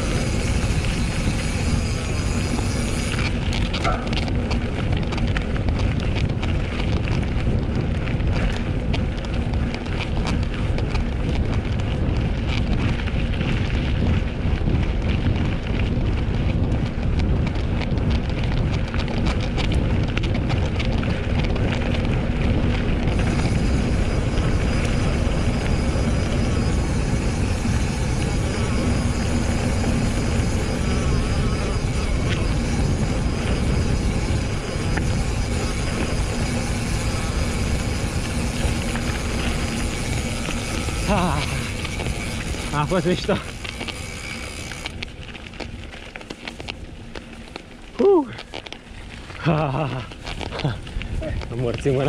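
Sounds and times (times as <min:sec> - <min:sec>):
faint high whine: 0:00.0 - 0:04.8, 0:22.3 - 0:50.1
bike rattling: 0:00.0 - 0:52.0
tyres rolling on rough ground: 0:00.0 - 0:52.0
wind buffeting microphone: 0:00.0 - 0:52.0.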